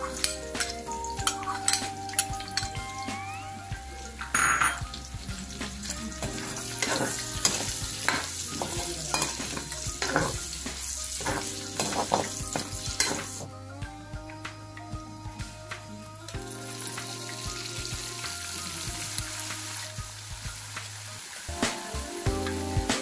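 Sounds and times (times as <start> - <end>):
meat sizzling in hot oil: 0.0 - 13.5, 16.4 - 21.5
spatula scraping a wok: 5.4 - 13.5.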